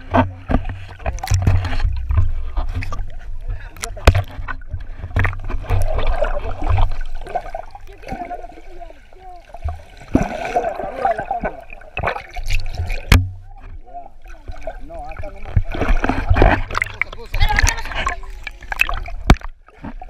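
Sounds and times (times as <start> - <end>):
water sloshing and trickling: 0.0 - 20.0
sharp knocks: 12.8 - 13.5.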